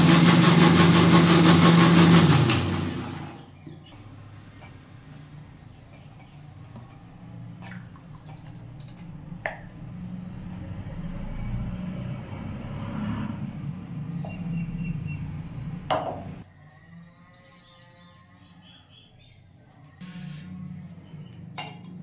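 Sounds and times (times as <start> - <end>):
juice pouring into glass bowl: 7.6 - 9.7.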